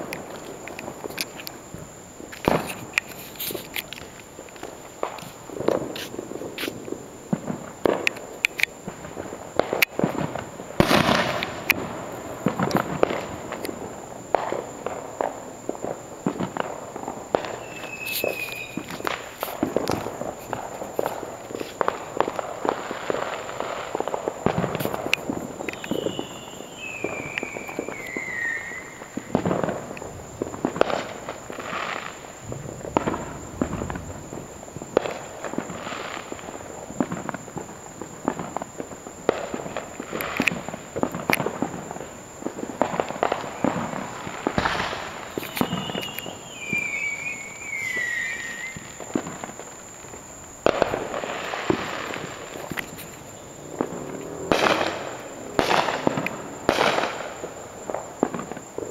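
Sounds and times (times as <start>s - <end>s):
fireworks bangs and pops: 0.0s - 58.9s
falling warbling whistle: 25.8s - 29.0s, 45.6s - 48.9s.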